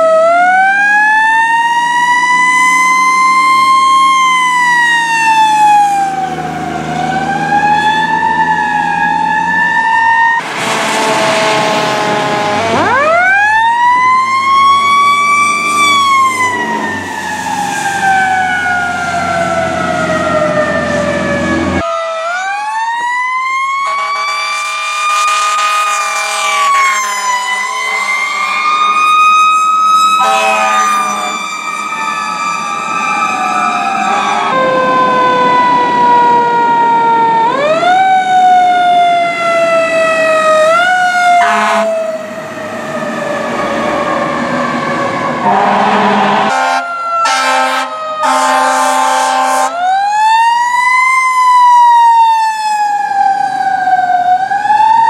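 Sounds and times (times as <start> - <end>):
fire truck sirens wailing: 0.0 - 55.0
truck engine rumble: 3.4 - 21.8
air horn blasts: 10.4 - 13.2, 23.8 - 28.9, 29.9 - 31.6, 41.3 - 42.0, 45.4 - 49.9.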